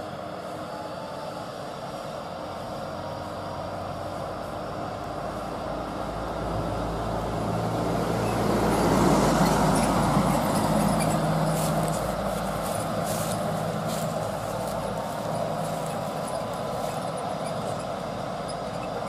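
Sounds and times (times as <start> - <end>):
diesel truck engine climbing: 0.0 - 19.0.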